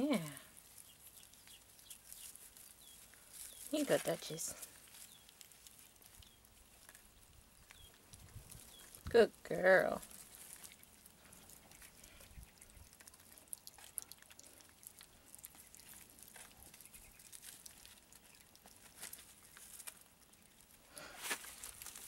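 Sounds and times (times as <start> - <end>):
puppies eating: 0.0 - 22.0
rustling on wood shavings: 0.0 - 22.0.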